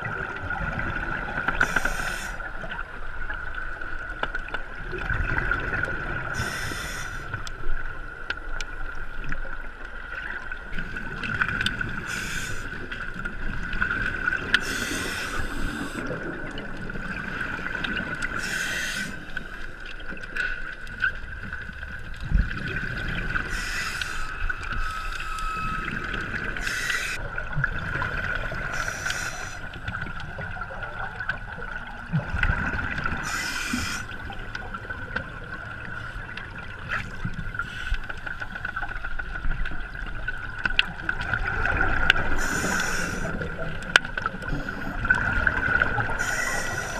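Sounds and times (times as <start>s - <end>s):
exhaled bubbles from regulator: 22.2s - 37.7s
steady high-pitched hum: 23.5s - 27.2s.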